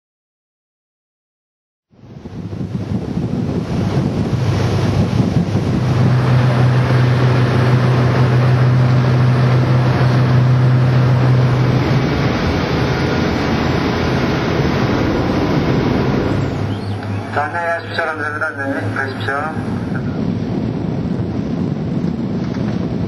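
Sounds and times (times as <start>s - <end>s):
low ship hum: 1.9s - 23.0s
wind buffeting microphone: 1.9s - 23.0s
ship engine noise: 2.0s - 23.0s
water rushing: 2.2s - 20.4s.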